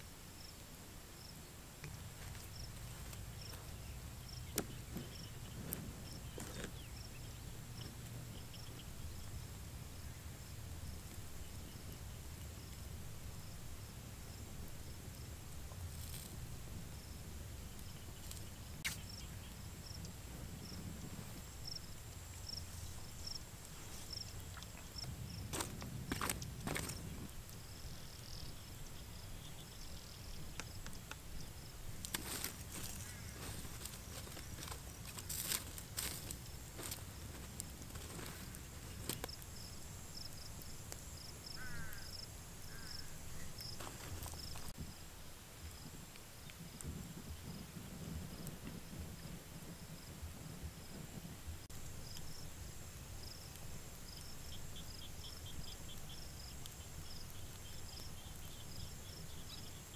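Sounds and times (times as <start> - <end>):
faint insect chirp: 0.0 - 59.9
low wind rumble: 0.0 - 59.9
outdoor ambience: 0.0 - 59.9
bird calls: 2.8 - 9.3, 32.8 - 34.5, 41.5 - 43.7
wood fire cracks and knocks: 4.5 - 6.8, 25.0 - 27.5, 31.9 - 39.6, 43.5 - 44.9.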